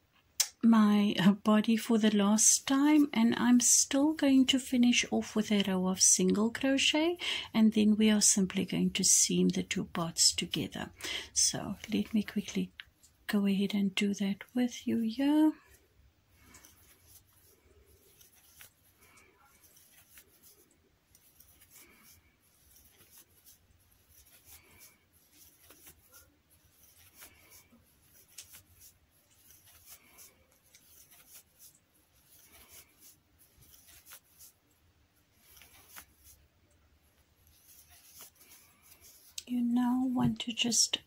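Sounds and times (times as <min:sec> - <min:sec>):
crochet hook scratching yarn: 0:00.4 - 0:41.0.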